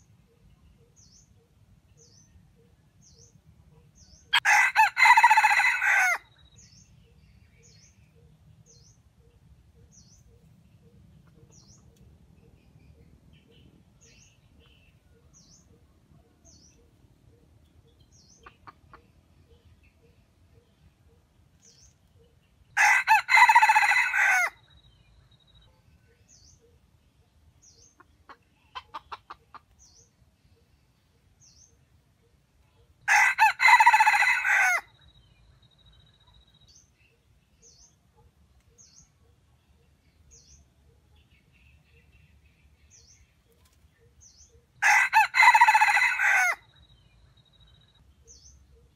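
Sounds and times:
rooster crowing: 4.4s - 6.3s, 22.8s - 24.6s, 33.1s - 34.9s, 44.8s - 46.7s.

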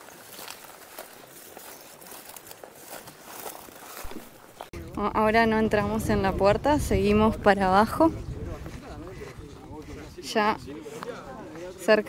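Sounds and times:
footsteps through long grass: 0.0s - 4.9s, 7.9s - 12.0s
rustling vegetation: 0.0s - 12.0s.

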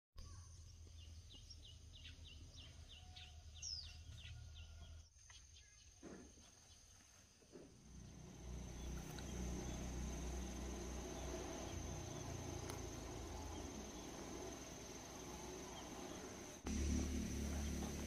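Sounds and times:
small bird chirping: 0.2s - 7.0s, 7.9s - 16.7s
high insect drone: 6.4s - 18.0s.

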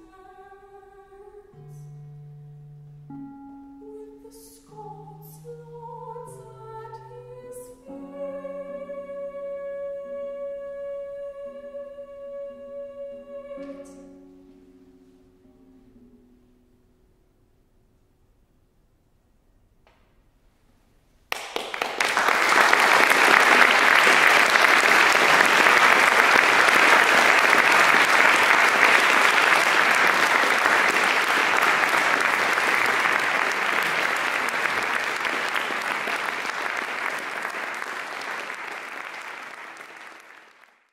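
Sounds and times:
audience applauding: 21.3s - 40.9s.

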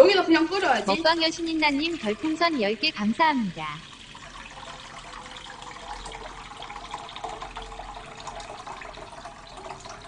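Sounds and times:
water pouring into pan: 0.0s - 10.0s.

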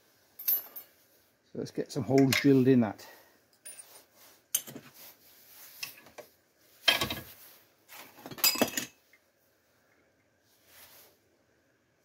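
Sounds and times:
metal tools clinking on vise: 3.6s - 4.8s, 8.3s - 9.0s.

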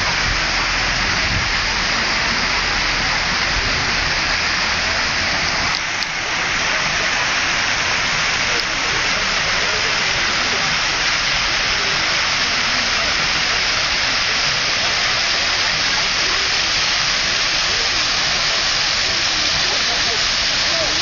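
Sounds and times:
fountain water splashing: 0.0s - 21.0s.

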